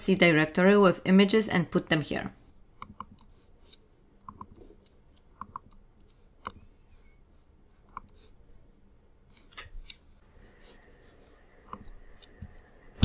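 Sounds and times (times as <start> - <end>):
computer mouse clicks: 2.8 - 6.6, 7.8 - 8.2.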